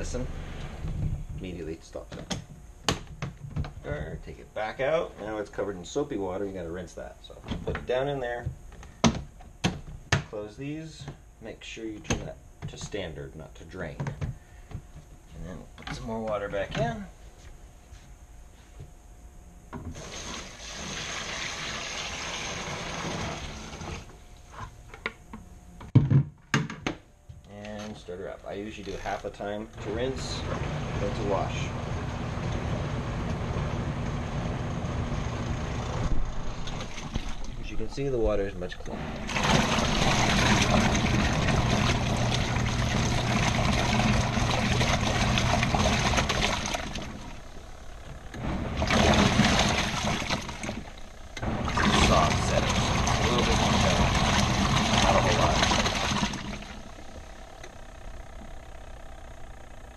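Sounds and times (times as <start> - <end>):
washing machine motor hum: 0.0 - 59.9
water pouring into tub: 20.0 - 24.0, 39.1 - 47.4, 48.4 - 57.1.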